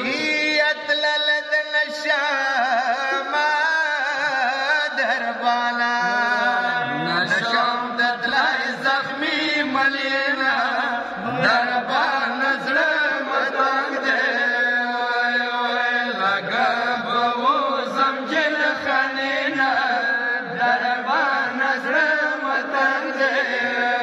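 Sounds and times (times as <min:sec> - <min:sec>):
man chanting lamentation: 0:00.0 - 0:24.0.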